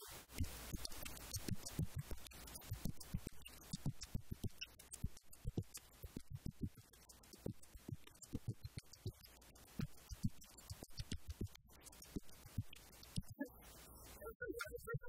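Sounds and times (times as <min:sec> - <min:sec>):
person beatboxing: 0:00.0 - 0:15.0.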